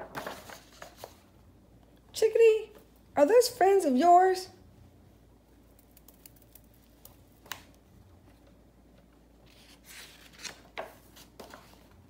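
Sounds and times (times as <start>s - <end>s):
book page turning: 0.1s - 1.2s, 9.4s - 12.0s.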